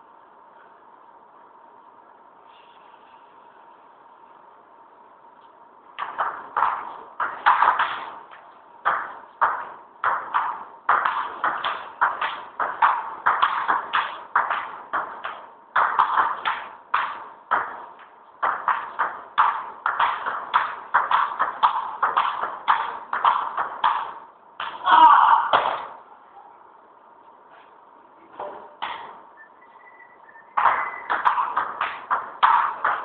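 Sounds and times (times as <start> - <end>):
ping pong ball tapping paddles: 6.0 - 24.8, 30.6 - 33.0.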